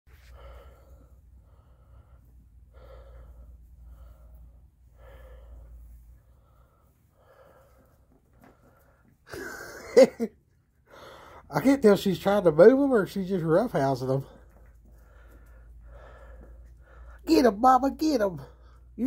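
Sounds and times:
person breathing slowly: 0.1s - 9.3s, 10.8s - 11.5s, 14.2s - 17.2s.

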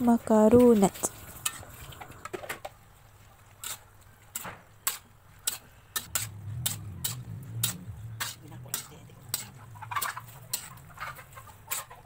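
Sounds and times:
spatula scraping a wok: 0.9s - 2.1s, 3.6s - 12.0s
low hum: 6.1s - 11.0s.

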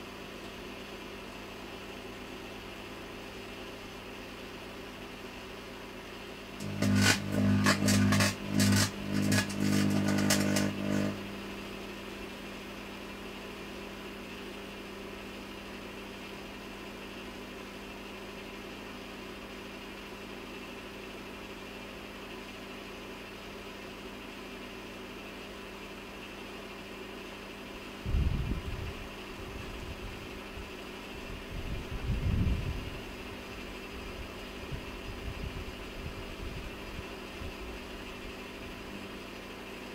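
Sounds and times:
microwave oven humming: 0.0s - 39.9s
electrical buzz with crackling: 6.6s - 11.9s.

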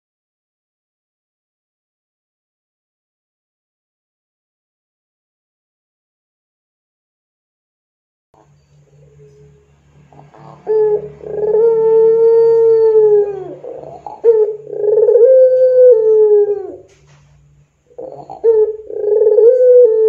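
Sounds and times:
dove cooing long notes: 8.4s - 17.1s, 17.9s - 20.0s.

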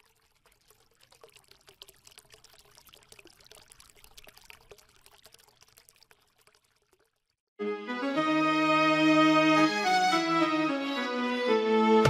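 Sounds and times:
faint splashing water drips: 0.0s - 7.5s.

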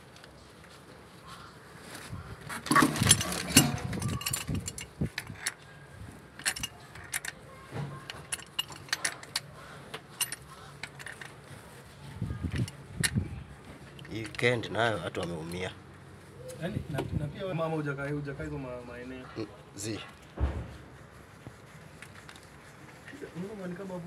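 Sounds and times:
pipe wrench clanking on metal pipe: 2.7s - 4.9s.

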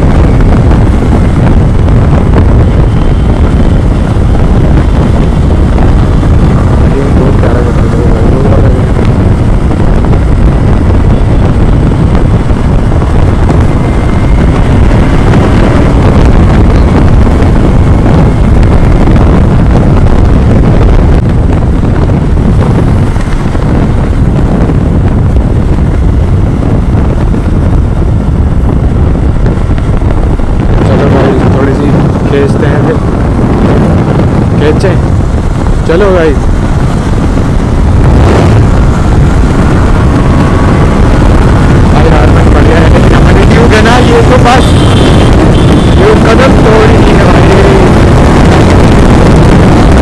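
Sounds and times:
motorcycle engine: 0.0s - 50.0s
wind rushing over microphone: 0.0s - 50.0s.

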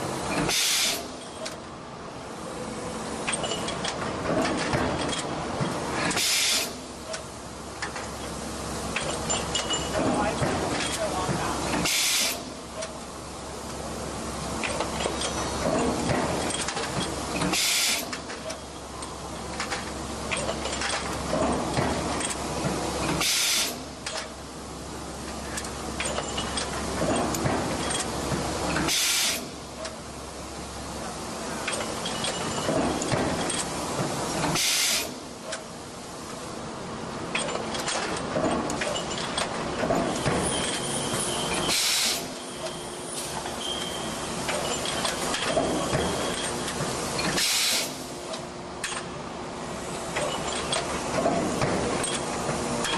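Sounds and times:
machine hiss: 0.4s - 1.2s, 6.0s - 6.9s, 11.7s - 12.6s, 17.4s - 18.2s, 23.1s - 24.0s, 28.8s - 29.6s, 34.3s - 35.4s, 40.1s - 46.3s, 47.2s - 48.2s
machine clicks and knocks: 3.2s - 6.2s, 8.9s - 13.0s, 14.6s - 24.4s, 25.3s - 29.0s, 31.6s - 34.6s, 37.3s - 40.8s, 44.4s - 47.5s, 48.3s - 49.2s, 50.1s - 52.9s
burst of hiss: 6.2s - 6.8s, 11.8s - 12.5s, 34.6s - 35.2s, 41.7s - 42.4s, 47.4s - 48.1s
forging press clatter: 8.9s - 13.0s, 14.6s - 24.4s, 25.4s - 30.0s, 31.5s - 35.7s, 37.3s - 42.7s, 44.4s - 49.2s, 50.1s - 52.9s.

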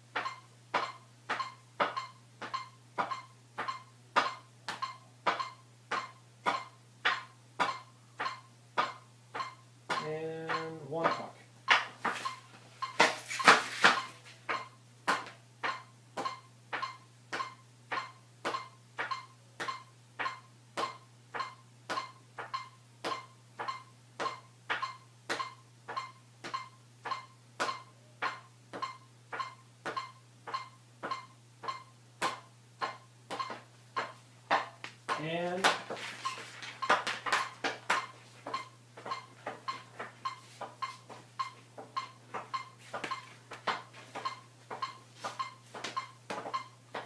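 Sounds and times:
metronome beeping clicks: 0.2s - 11.4s, 15.6s - 34.2s, 36.2s - 43.3s, 44.2s - 46.8s
hockey stick tapping puck: 12.9s - 22.6s.

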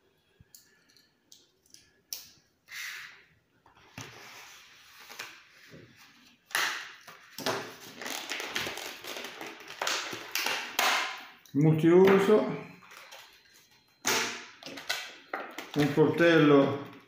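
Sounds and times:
plastic packaging crackling: 6.7s - 11.2s, 14.6s - 17.0s.

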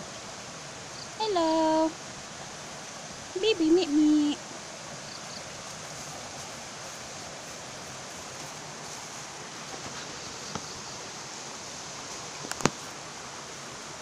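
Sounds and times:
steady hiss: 0.0s - 14.0s.

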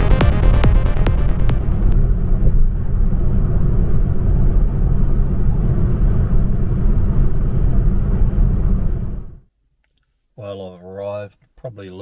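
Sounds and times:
car road and engine rumble: 1.7s - 9.4s.

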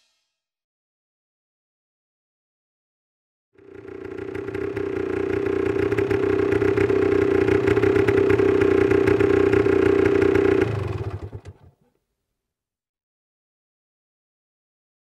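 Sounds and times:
motocross bike engine revving: 3.6s - 11.7s.

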